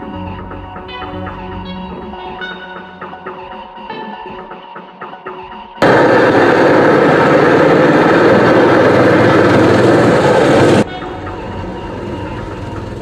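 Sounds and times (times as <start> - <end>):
steady background sound: 0.4 - 13.0
loud harsh blast of noise: 5.8 - 12.2.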